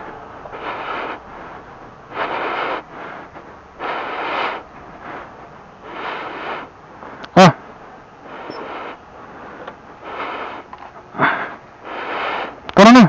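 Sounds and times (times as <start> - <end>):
person breathing close: 0.0 - 7.6, 8.2 - 12.7.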